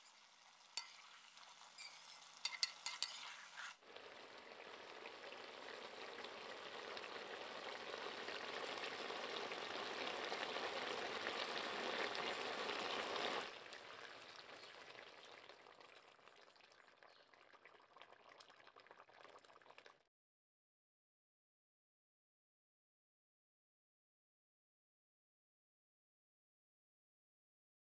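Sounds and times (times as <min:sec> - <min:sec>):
food sizzling in a wok: 0:00.0 - 0:14.8
water poured into pan: 0:00.0 - 0:20.1.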